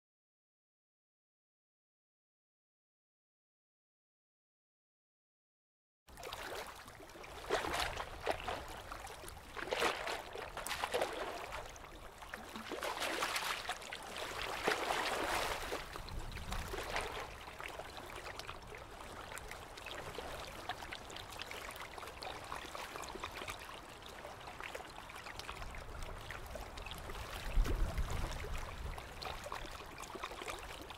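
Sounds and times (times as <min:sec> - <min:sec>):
flowing water: 0:06.1 - 0:30.9
water splashing: 0:06.2 - 0:20.7.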